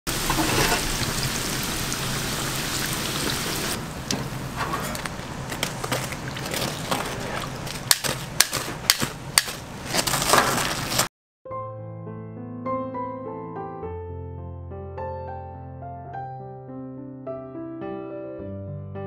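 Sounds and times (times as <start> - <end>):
dough sizzling in hot oil: 0.1 - 3.8.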